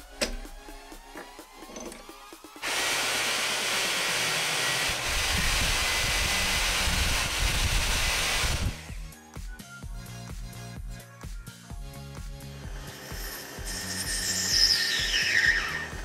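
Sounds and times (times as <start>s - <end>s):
loud rushing hiss: 2.5s - 8.9s.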